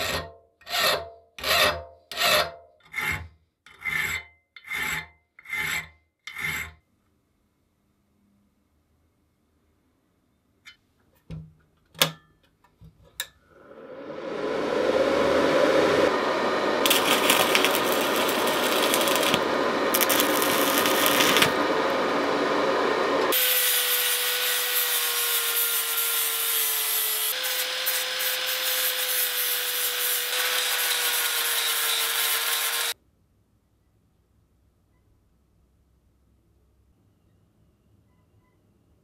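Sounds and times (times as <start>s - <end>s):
machine humming: 13.6s - 23.4s
shop tools cutting wood: 15.4s - 33.0s.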